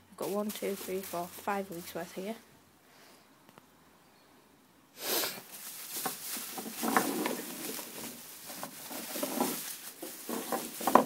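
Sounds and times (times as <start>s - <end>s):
plastic bags rustling: 0.2s - 2.4s, 5.0s - 11.0s
small knocks: 5.9s - 11.0s.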